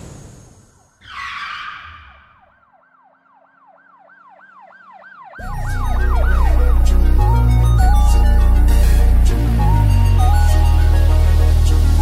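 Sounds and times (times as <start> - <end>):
fast yelping siren: 1.0 - 6.8
heavy-bass music: 5.4 - 12.0.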